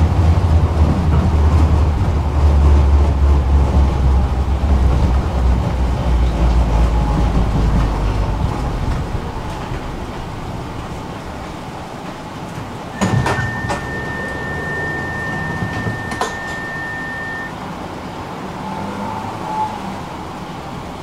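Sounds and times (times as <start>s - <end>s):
tram motors humming: 0.0s - 18.5s
door mechanism clunk: 13.0s - 16.9s
high warning beep: 13.0s - 17.5s.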